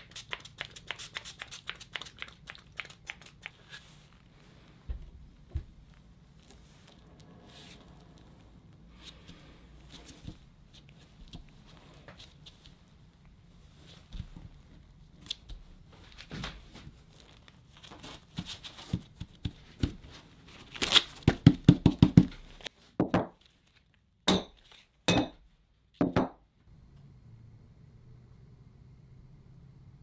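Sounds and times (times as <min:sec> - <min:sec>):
tape rustling and crinkling: 0:13.8 - 0:21.3, 0:22.3 - 0:25.0
tape ripping: 0:20.6 - 0:21.2.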